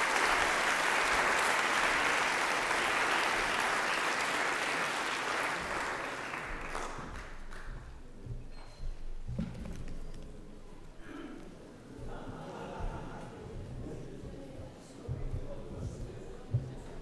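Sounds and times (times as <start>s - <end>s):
audience applauding: 0.0s - 7.7s.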